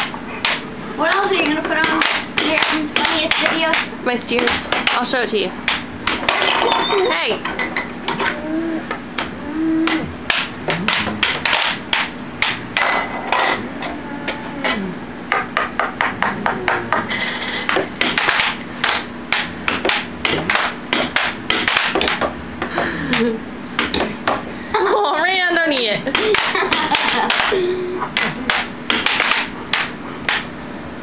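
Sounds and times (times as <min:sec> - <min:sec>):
air hockey puck clacking: 0:00.0 - 0:06.7, 0:09.9 - 0:13.6, 0:15.3 - 0:24.5, 0:25.8 - 0:30.5
air blower hum: 0:08.0 - 0:25.1.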